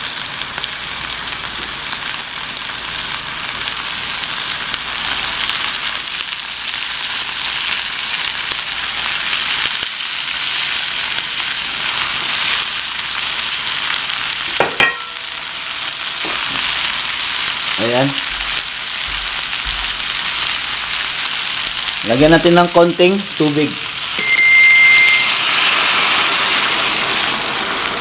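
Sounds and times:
shrimp sizzling in a pan: 0:00.0 - 0:28.0
spoon clinking against pan: 0:14.6 - 0:15.2.

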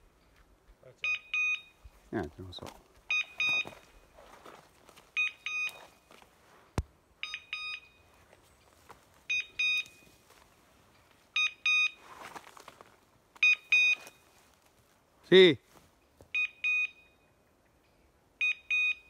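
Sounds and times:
short electronic double beeps: 0:01.0 - 0:01.8, 0:03.1 - 0:03.8, 0:05.2 - 0:05.9, 0:09.3 - 0:10.0, 0:11.4 - 0:12.0, 0:13.4 - 0:14.2, 0:16.3 - 0:17.3, 0:18.4 - 0:19.0.

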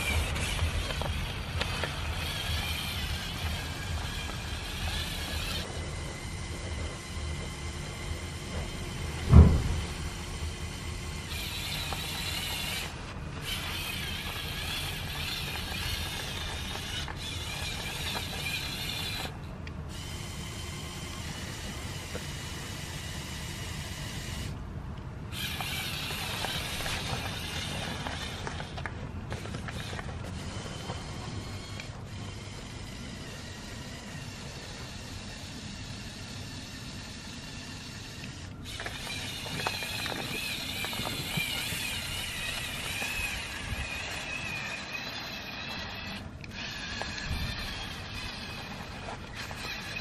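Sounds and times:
toy motors and gears whirring: 0:00.0 - 0:50.0
heavy thump: 0:09.2 - 0:10.0.

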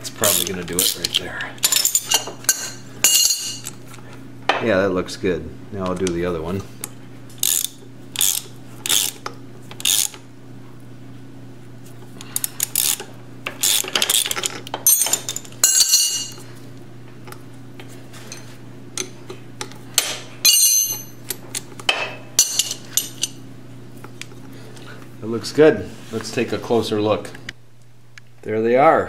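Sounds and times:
metal tools clinking: 0:00.2 - 0:03.8, 0:13.6 - 0:16.4, 0:20.4 - 0:21.6, 0:22.4 - 0:23.4
socket ratchet clicking: 0:07.4 - 0:10.2.

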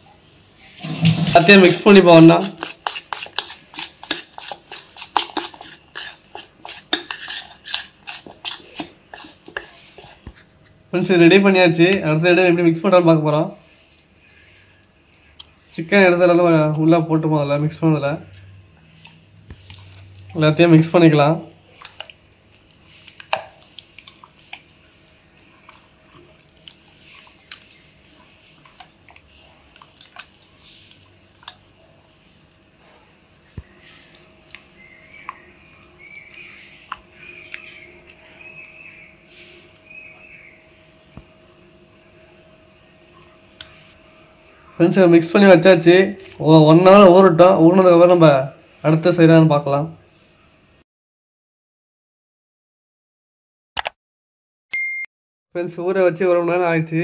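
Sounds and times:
utensil stirring batter in metal bowl: 0:00.6 - 0:10.5
hand squelching chicken in batter: 0:21.4 - 0:32.8
soft wet clicks and smacks: 0:21.5 - 0:27.8, 0:28.6 - 0:31.6, 0:34.1 - 0:38.8.

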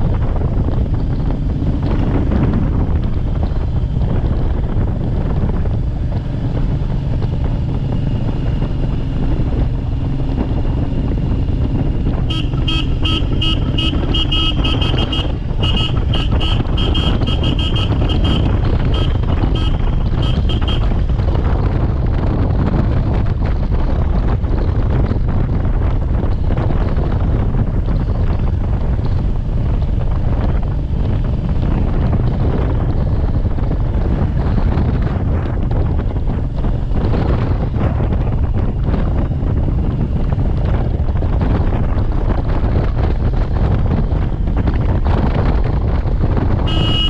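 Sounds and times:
wind rush on microphone: 0:00.0 - 0:47.0
vehicle horn short beeps: 0:12.3 - 0:20.9, 0:46.7 - 0:47.0.

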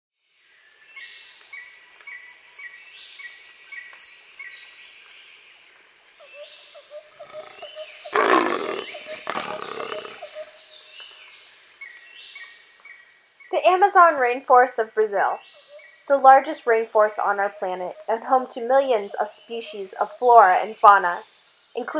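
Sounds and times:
insect calls: 0:00.3 - 0:21.9
high bird calls: 0:06.3 - 0:10.6, 0:16.7 - 0:21.1
jaguar deep growl: 0:07.2 - 0:10.4.

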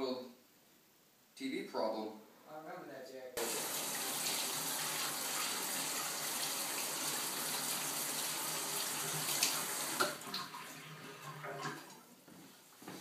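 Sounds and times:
faucet running onto hands: 0:03.4 - 0:12.0.

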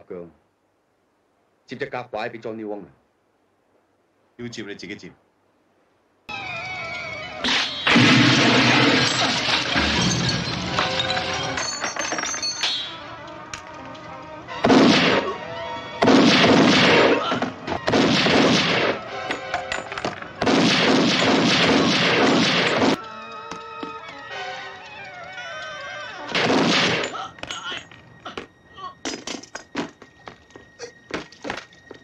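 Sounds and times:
automatic gunfire: 0:16.0 - 0:17.2, 0:17.9 - 0:19.0, 0:20.4 - 0:23.0.

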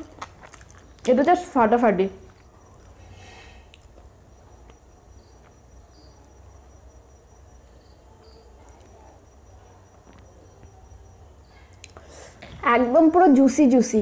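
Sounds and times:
thin high whine: 0:02.4 - 0:12.7.

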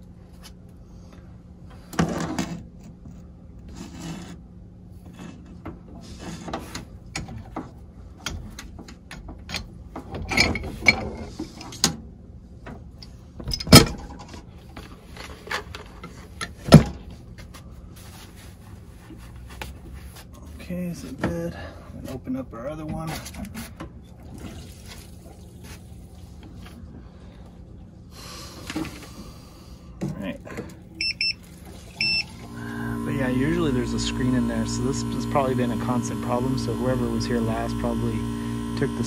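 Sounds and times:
low steady hum: 0:12.3 - 0:39.0.

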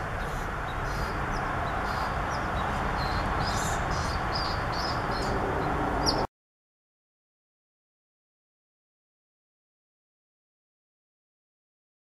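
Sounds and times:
birds chirping: 0:00.0 - 0:06.3.

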